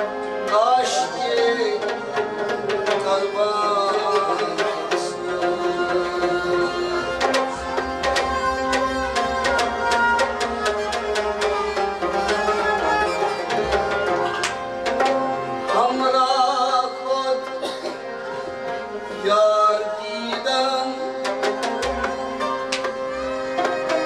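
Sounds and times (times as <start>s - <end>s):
harmonium chords: 0.0s - 24.0s
man singing: 0.4s - 7.6s, 15.7s - 18.0s, 19.2s - 21.6s.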